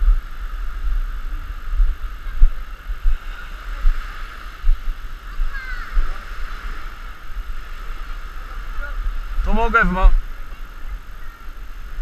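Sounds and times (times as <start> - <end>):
background hiss: 0.0 - 12.0
wind buffeting microphone: 0.0 - 12.0.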